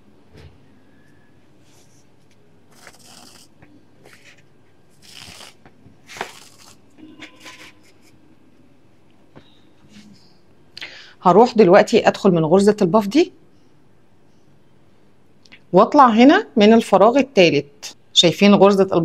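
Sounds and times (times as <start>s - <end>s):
fabric rustling and scraping: 1.6s - 8.2s.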